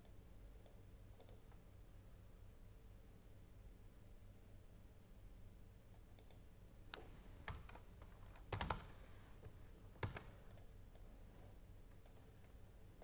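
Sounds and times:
faint low hum: 0.0s - 13.0s
computer keyboard keystrokes: 6.2s - 9.0s, 10.0s - 11.1s.

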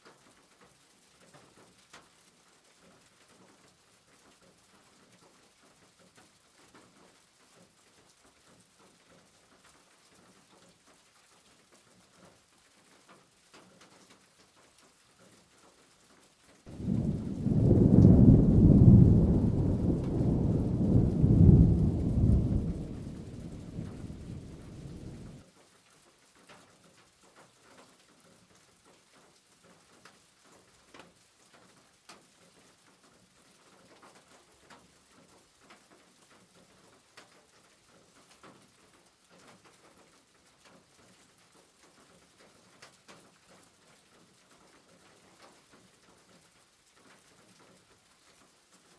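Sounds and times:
faint ticks and taps: 0.0s - 18.2s, 19.3s - 48.9s.

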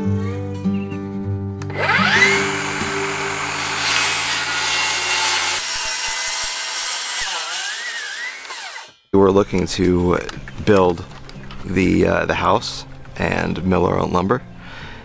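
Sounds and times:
background music: 0.0s - 6.3s, 9.2s - 15.0s
circular saw cutting panel: 1.7s - 9.0s.

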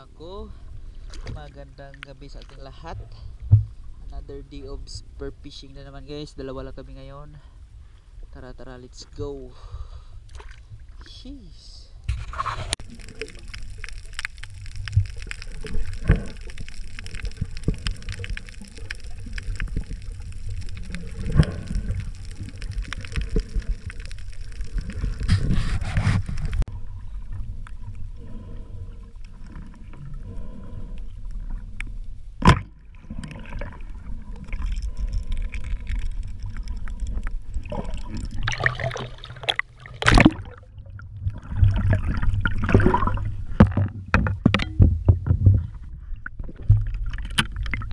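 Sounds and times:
water sloshing and gurgling: 0.0s - 11.1s, 11.9s - 47.9s
low underwater rumble: 12.0s - 47.9s
small clicks: 12.7s - 25.5s.

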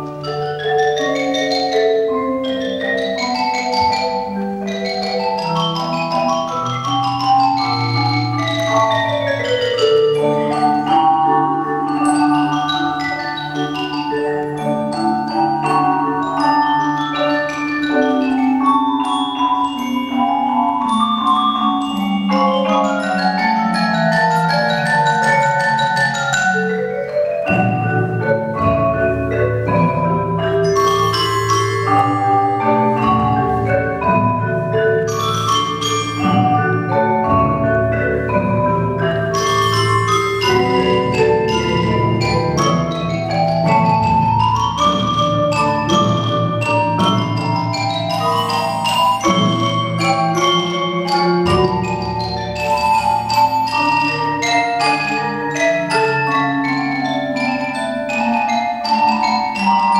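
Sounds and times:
marimba bass line: 0.0s - 59.9s
marimba mallet notes: 0.0s - 59.9s.

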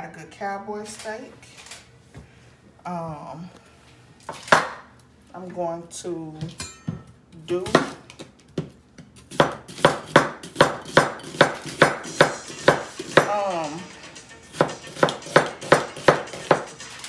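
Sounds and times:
knife chopping on cutting board: 4.3s - 4.8s, 7.6s - 13.5s, 14.5s - 16.8s.

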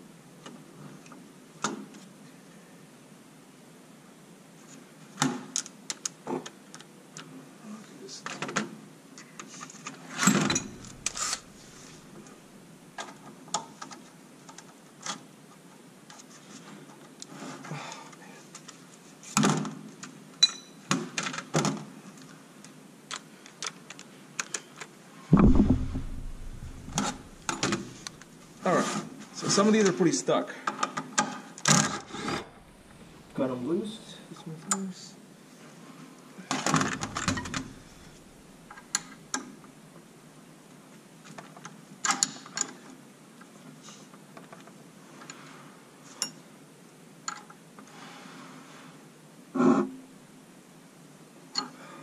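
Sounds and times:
heavy thud: 10.5s - 11.8s, 25.3s - 28.2s, 32.4s - 33.4s, 36.8s - 38.2s
loud knocks: 10.5s - 11.8s, 25.3s - 28.1s, 36.8s - 38.2s.

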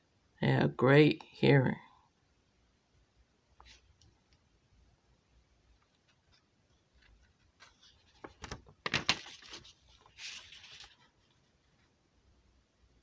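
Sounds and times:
paper page crackling: 5.9s - 11.9s
paper rustle: 5.9s - 11.9s.

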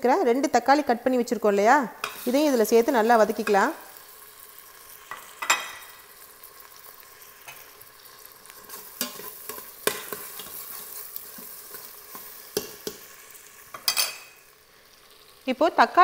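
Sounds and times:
tomatoes sizzling in hot oil: 0.0s - 16.0s
spatula scraping and knocking pot: 8.7s - 13.1s.

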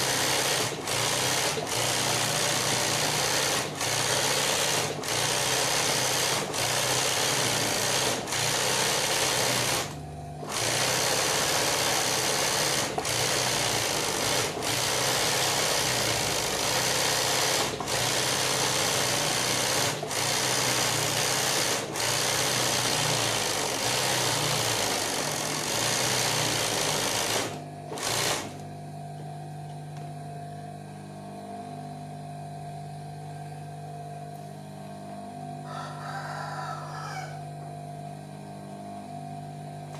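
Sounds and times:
industrial sewing machine running: 0.0s - 28.6s.

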